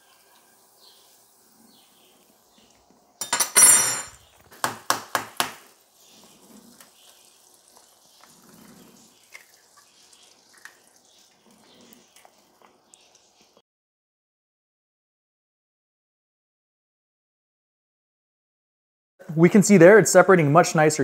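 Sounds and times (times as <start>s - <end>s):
butter sizzling in skillet: 0.0s - 13.6s
metallic ringing: 3.2s - 4.2s
kitchenware clattering: 3.2s - 4.3s.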